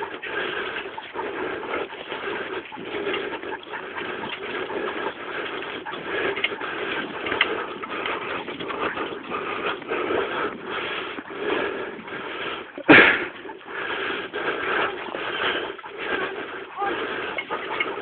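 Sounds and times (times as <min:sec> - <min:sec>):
dogs panting: 0:00.0 - 0:18.0
scooter wheels rattling on dirt: 0:00.0 - 0:18.0.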